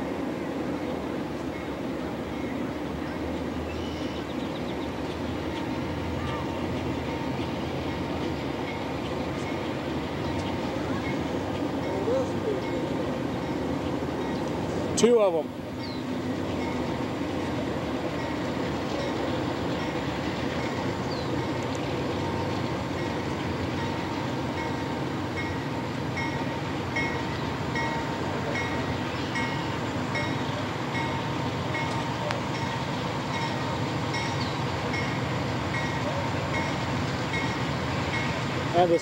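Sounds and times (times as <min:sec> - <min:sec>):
freight train rumble: 0:00.0 - 0:39.0
railroad crossing bell ringing: 0:01.4 - 0:04.2, 0:04.9 - 0:39.0.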